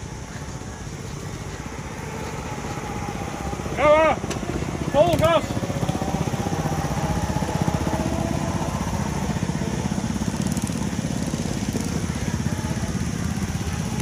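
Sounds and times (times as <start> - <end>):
go-kart engine putter: 4.2 - 6.4.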